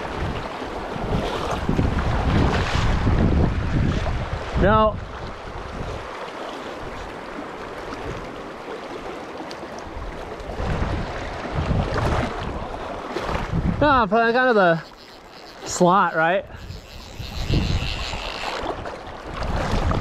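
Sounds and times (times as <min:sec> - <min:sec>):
wind buffeting microphone: 0:00.0 - 0:06.2, 0:09.9 - 0:20.0.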